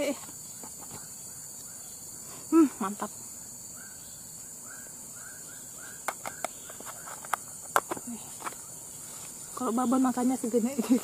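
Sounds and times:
high insect buzz: 0.0 - 11.0.

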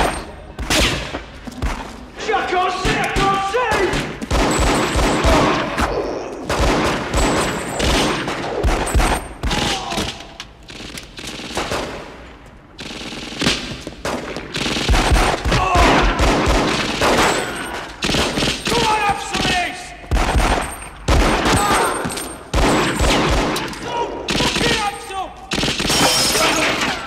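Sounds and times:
heavy gunfire: 2.8 - 12.2, 12.8 - 23.6
pistol shots: 2.8 - 12.2, 12.8 - 24.9, 25.5 - 27.0.

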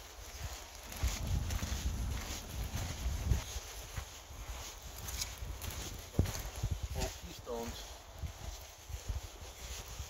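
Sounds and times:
footsteps crunching on gravel: 0.0 - 10.0.

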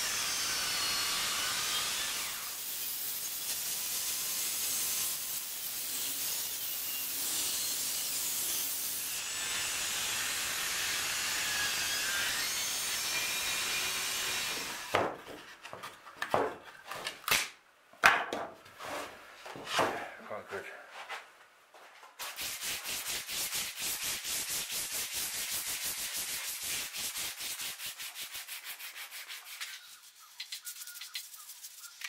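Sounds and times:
table saw cutting wood: 0.0 - 15.1.

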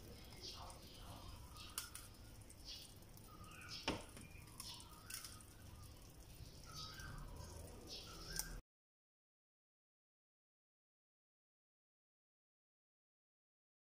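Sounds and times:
eggshells cracking: 0.1 - 5.6.

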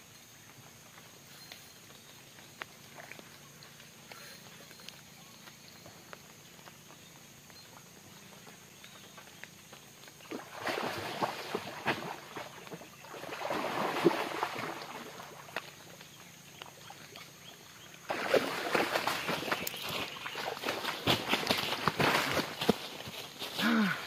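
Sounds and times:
fish thrashing and splashing: 10.3 - 15.6, 18.1 - 22.3.

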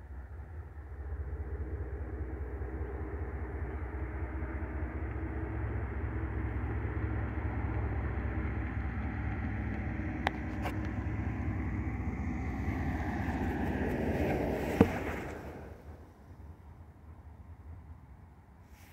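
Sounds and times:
distant diesel locomotive rumble: 0.0 - 18.9.

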